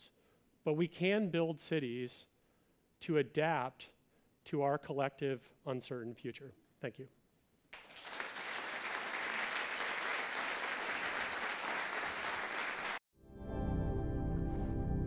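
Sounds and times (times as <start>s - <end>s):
audience applauding: 7.7s - 13.0s
calm music with sustained notes: 13.2s - 15.0s.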